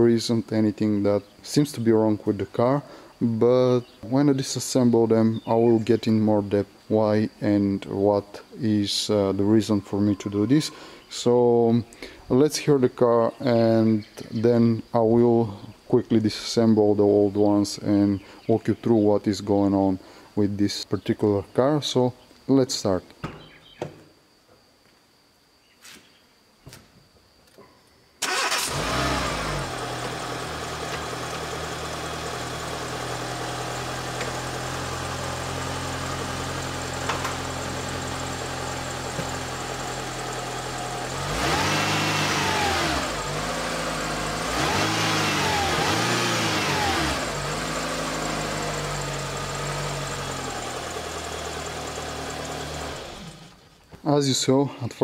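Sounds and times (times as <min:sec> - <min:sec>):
car engine revving: 0:28.2 - 0:53.6
car engine starting and idling: 0:28.2 - 0:53.9.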